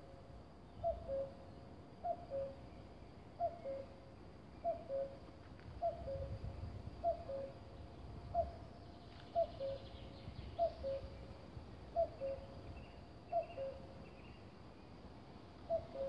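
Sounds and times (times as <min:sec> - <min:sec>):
cuckoo calling: 0:00.8 - 0:01.4, 0:04.6 - 0:05.2, 0:07.0 - 0:07.6, 0:09.2 - 0:11.2, 0:12.0 - 0:12.6, 0:13.3 - 0:13.9, 0:15.7 - 0:16.0.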